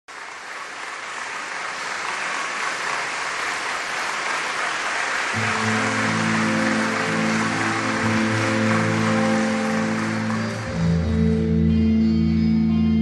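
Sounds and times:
low sustained chords: 5.4s - 13.0s.

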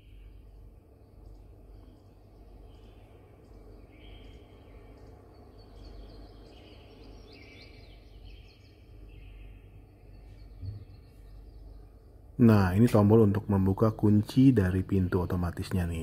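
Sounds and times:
bird chirps and trills: 0.0s - 16.0s
steady low hum: 0.0s - 16.0s.

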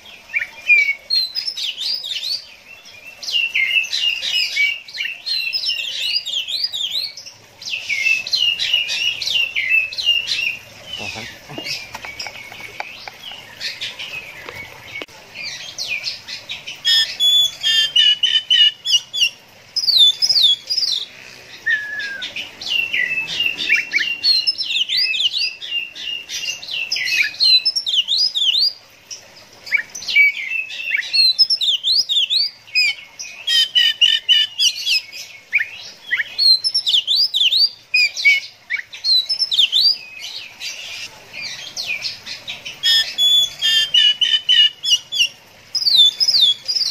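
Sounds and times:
songbird singing whistles and trills: 16.9s - 21.0s, 21.6s - 28.8s, 29.7s - 41.1s, 42.7s - 46.9s.

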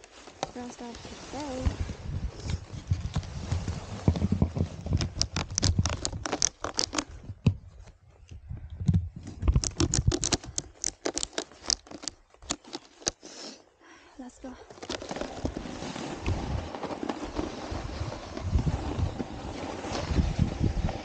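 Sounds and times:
rustle of handling: 0.0s - 8.3s
ratchet straps clicking: 4.8s - 7.2s, 9.3s - 13.2s.

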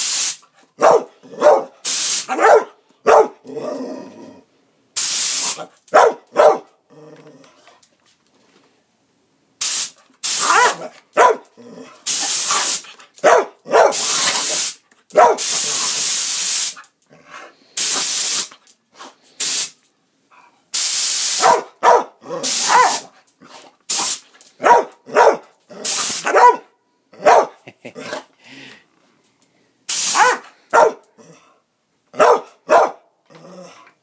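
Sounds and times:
air blow gun hissing: 0.0s - 0.4s, 1.8s - 2.3s, 5.0s - 5.6s, 9.6s - 10.6s, 12.1s - 12.9s, 13.9s - 14.8s, 15.4s - 16.8s, 17.8s - 18.5s, 19.4s - 19.8s, 20.8s - 21.6s, 22.4s - 23.0s, 23.9s - 24.2s, 25.9s - 26.3s, 29.9s - 30.3s
dog barking: 0.8s - 3.4s, 5.6s - 6.7s, 10.4s - 11.5s, 12.5s - 14.4s, 15.1s - 15.5s, 21.4s - 23.1s, 24.6s - 25.5s, 26.1s - 27.6s, 30.1s - 31.0s, 32.2s - 33.1s.

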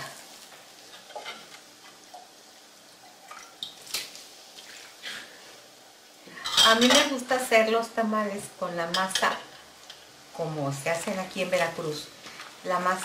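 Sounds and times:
broth drips and small splashes: 3.0s - 5.0s.

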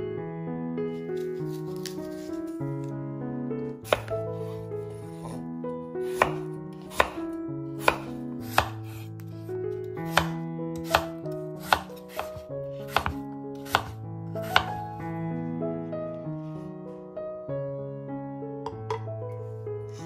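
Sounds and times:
soft piano music: 0.0s - 20.0s
knife chopping on wooden board: 3.8s - 4.2s, 6.0s - 9.1s, 10.0s - 14.8s.

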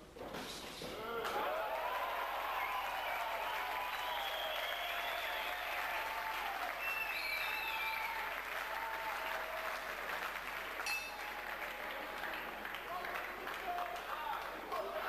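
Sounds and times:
crowd applauding: 1.3s - 15.0s.

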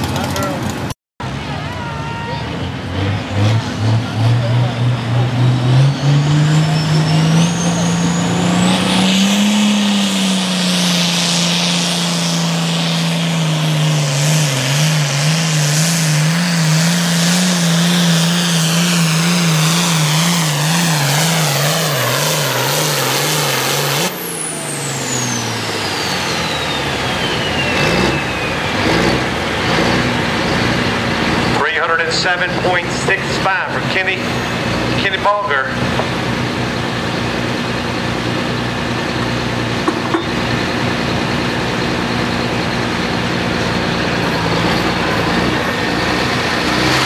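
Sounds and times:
tractor diesel engine revving: 0.0s - 1.7s, 2.4s - 47.0s
turbo whistle: 5.9s - 9.1s, 24.5s - 28.8s.

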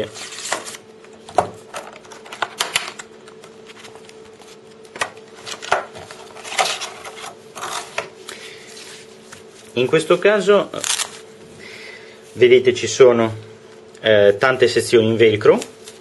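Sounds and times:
cardboard and plastic rustling: 0.0s - 8.1s.

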